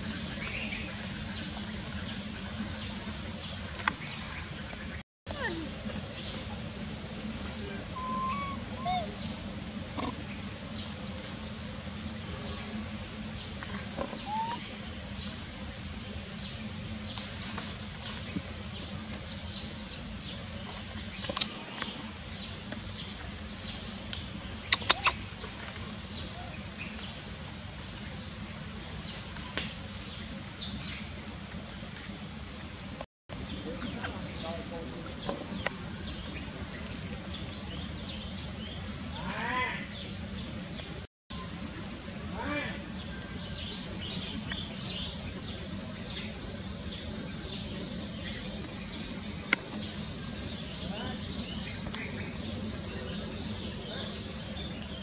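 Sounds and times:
outdoor background noise: 0.0s - 55.0s
steady low hum: 0.0s - 55.0s
macaque call rising and falling: 7.8s - 9.2s, 14.2s - 14.7s.

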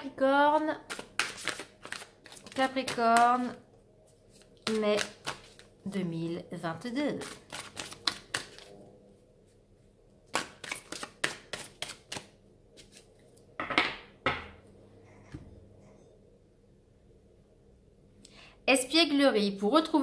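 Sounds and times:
cards clicking while shuffled: 0.9s - 3.5s.

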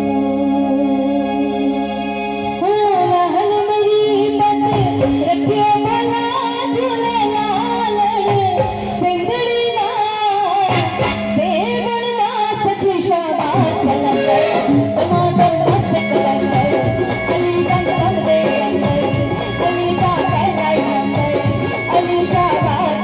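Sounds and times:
band with keyboard and drums: 0.0s - 23.0s
woman singing into microphone: 0.0s - 23.0s
held keyboard note: 10.6s - 23.0s.

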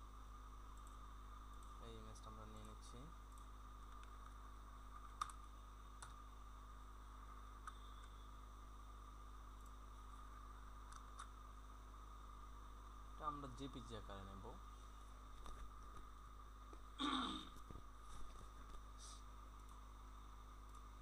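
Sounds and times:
faint computer mouse clicks: 7.6s - 8.2s.

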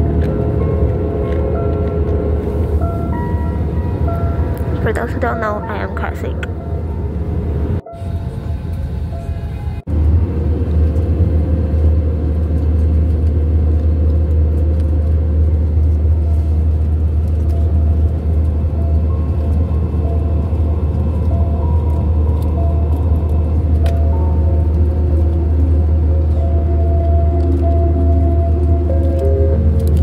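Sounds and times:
airliner cabin drone: 0.0s - 30.0s.

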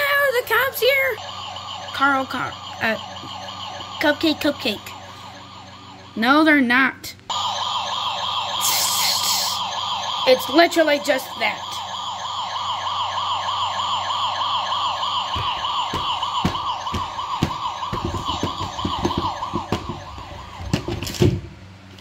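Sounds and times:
warbling electronic siren: 0.0s - 6.7s, 7.3s - 21.2s
plush toys thumping plastic box: 15.4s - 21.4s.

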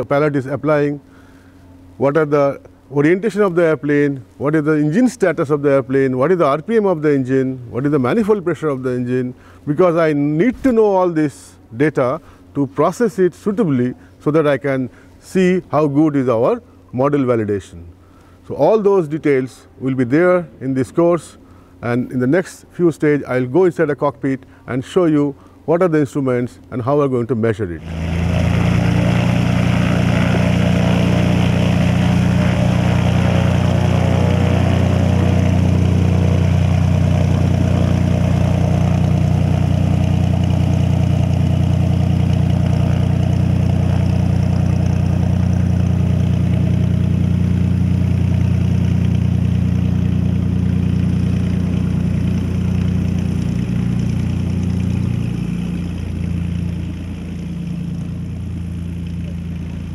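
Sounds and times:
light aircraft engine and propeller: 0.0s - 15.8s, 27.8s - 59.9s.

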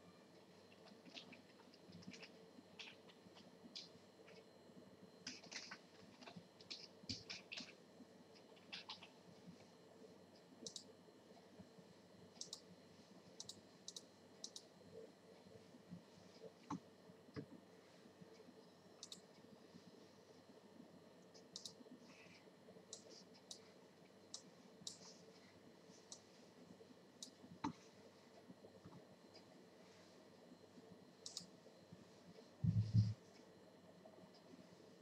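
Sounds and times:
mouse clicks: 10.6s - 10.9s, 12.4s - 12.6s, 13.4s - 14.7s, 19.0s - 19.3s, 21.4s - 21.8s, 24.3s - 25.1s, 31.2s - 31.5s.

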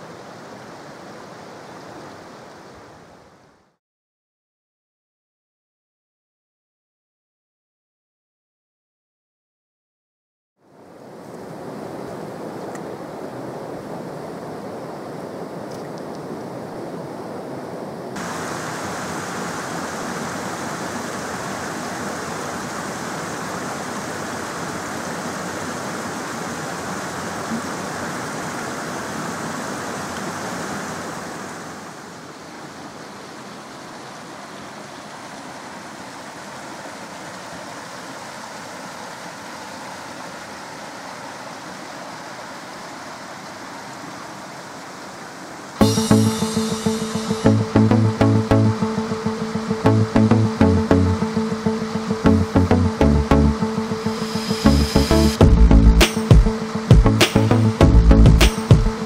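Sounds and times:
water rushing in a stream: 0.0s - 3.8s, 10.6s - 59.0s.

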